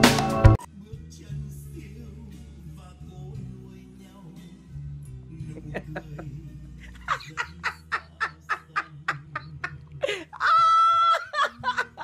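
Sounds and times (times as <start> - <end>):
man laughing hard: 5.5 - 12.0
high-pitched held cry: 10.2 - 12.0.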